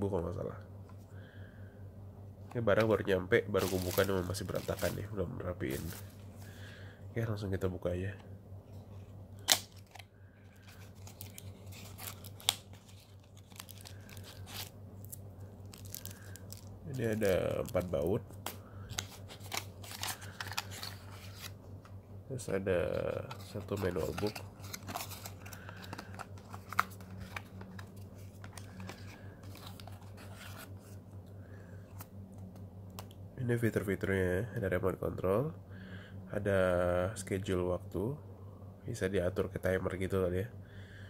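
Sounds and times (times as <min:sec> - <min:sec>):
steady low hum: 0:00.0 - 0:41.0
cardboard and plastic rustling: 0:03.5 - 0:06.2, 0:10.6 - 0:18.2, 0:18.9 - 0:21.5, 0:23.0 - 0:31.0
packaging clicks: 0:09.4 - 0:21.5, 0:23.3 - 0:30.6.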